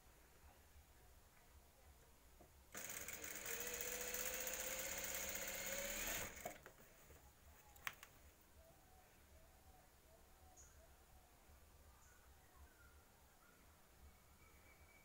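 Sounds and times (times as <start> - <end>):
sewing machine stitching: 2.7 - 6.6.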